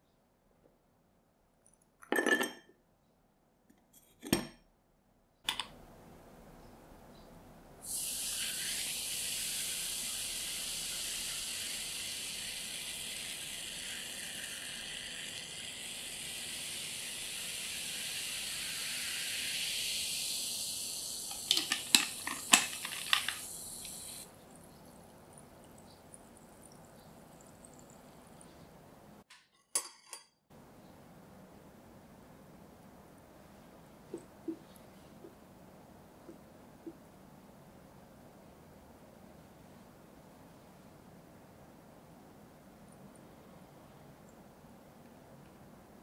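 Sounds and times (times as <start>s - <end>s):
fizzing water pouring: 7.9s - 28.4s.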